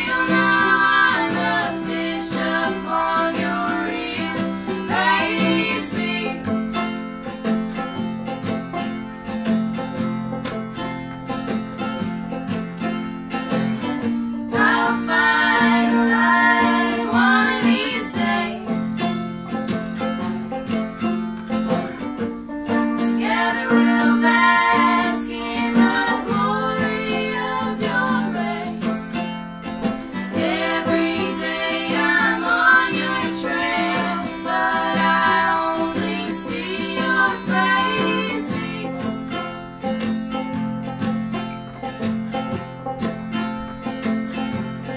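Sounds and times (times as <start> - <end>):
female voices singing in harmony: 0.0 - 6.6, 14.5 - 18.9, 23.0 - 29.2, 30.0 - 39.4
acoustic guitar: 0.0 - 44.9
banjo: 0.0 - 44.9
picked mandolin: 0.0 - 44.9.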